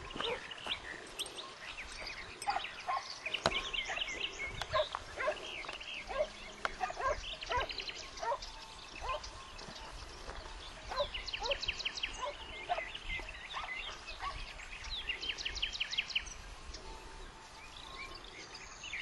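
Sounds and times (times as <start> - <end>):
birds chirping: 0.0 - 19.0
hounds yelping: 0.1 - 1.6, 2.2 - 3.2, 3.8 - 9.7, 10.7 - 14.6.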